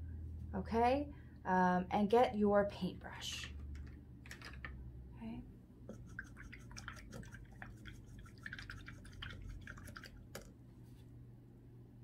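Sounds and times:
paintbrush tapping in water: 5.9 - 10.5.

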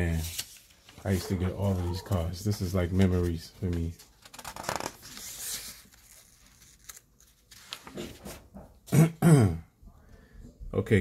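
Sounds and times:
book page rustling: 0.1 - 8.5.

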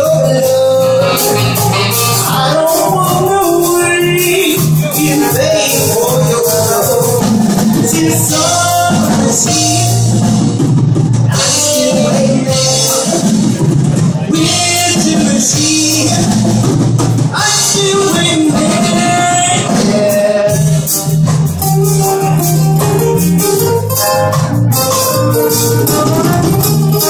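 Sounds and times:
person singing: 0.0 - 10.5, 11.3 - 21.4
trombone and saxophone: 0.0 - 10.5, 17.4 - 27.0
guitar and ukulele strumming: 0.0 - 10.6, 11.2 - 27.0
bass line: 0.0 - 27.0
drums: 0.0 - 27.0.

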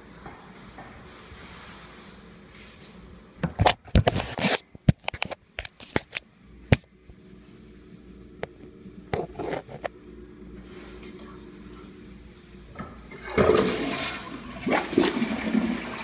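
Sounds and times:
scrapes and clicks at toilet tank: 9.1 - 9.9.

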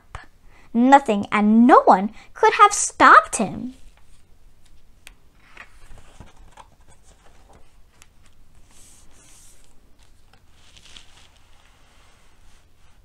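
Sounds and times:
book pages rustling: 3.8 - 13.0.

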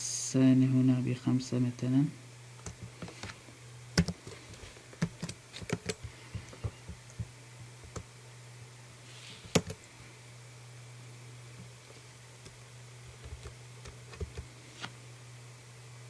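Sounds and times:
steady low hum: 0.0 - 16.0
keyboard keystrokes: 4.0 - 4.2, 5.0 - 7.3, 9.5 - 9.8, 13.1 - 14.4.

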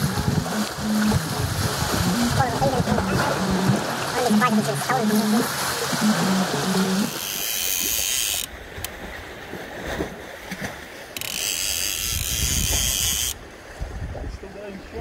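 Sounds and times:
fishing reel ratchet buzzing: 7.1 - 8.5, 11.2 - 13.4.

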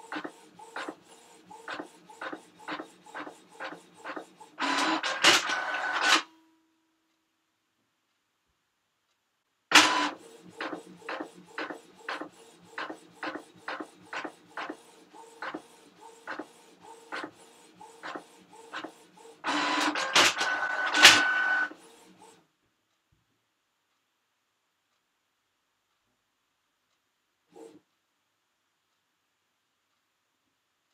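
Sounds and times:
printer clacking: 0.0 - 6.2, 9.7 - 21.9
printer humming: 0.0 - 6.2, 9.7 - 22.3
printer mechanism whine: 0.0 - 6.3, 9.7 - 22.3.

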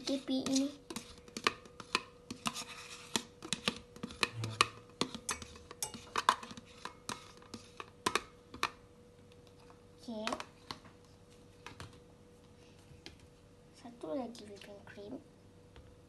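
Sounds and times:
faint steady hum: 0.0 - 16.0
spoon scraping plastic tub: 0.4 - 7.9.

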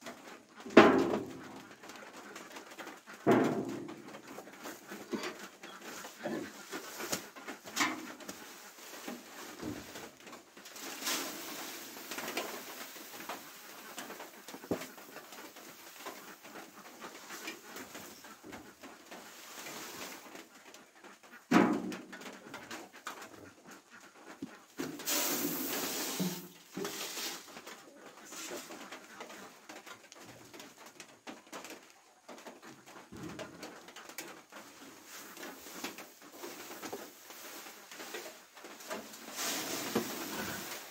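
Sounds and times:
sacks rustling: 3.5 - 20.5, 24.8 - 29.3, 34.6 - 40.9.

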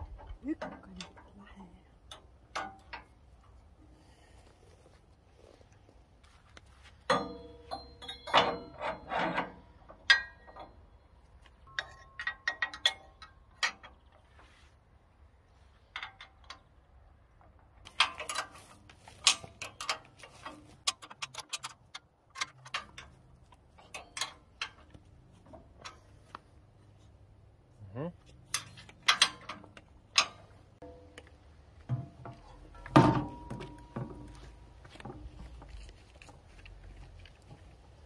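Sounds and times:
steel parts clinking: 7.1 - 14.0, 17.8 - 26.4, 28.2 - 35.7.

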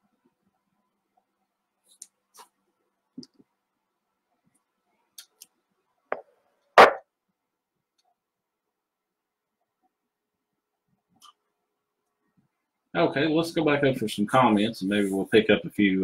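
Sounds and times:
faint clicks and taps: 1.9 - 3.6.

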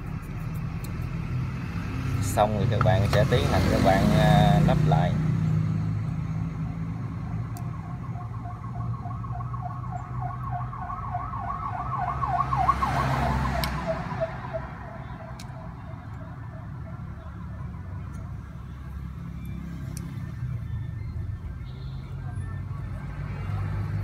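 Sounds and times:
low rumble of traffic: 0.0 - 24.0
siren warbling: 6.6 - 21.5.

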